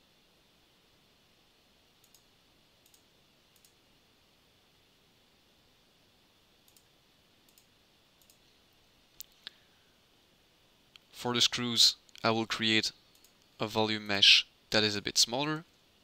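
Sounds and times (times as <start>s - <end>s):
background hiss: 0.0s - 16.0s
computer mouse clicks: 2.0s - 3.8s, 6.6s - 6.9s, 7.5s - 8.5s, 13.1s - 13.5s.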